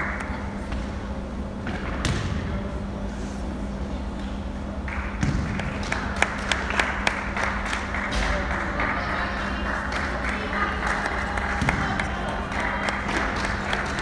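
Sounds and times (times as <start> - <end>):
low hall hum: 0.0 - 14.0
basketball bouncing on court: 5.2 - 5.6.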